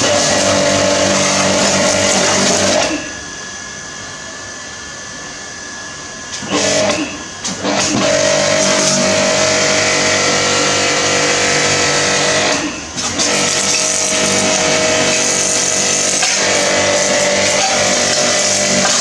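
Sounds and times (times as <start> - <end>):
pressure washer pump hum: 0.0 - 4.0, 6.1 - 19.0
high-pressure water jet hissing: 7.7 - 19.0.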